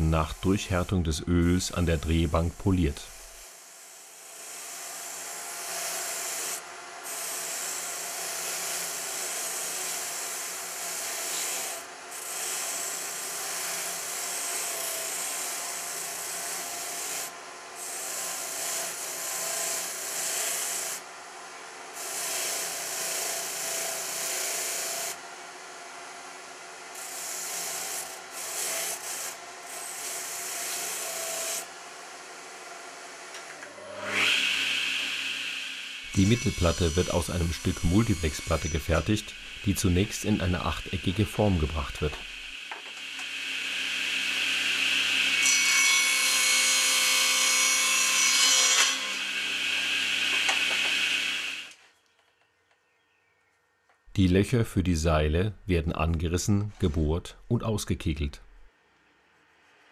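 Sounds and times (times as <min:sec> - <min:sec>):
wood rubbing on buffing wheel: 0:36.1 - 0:42.5
lathe motor hum: 0:37.6 - 0:41.1.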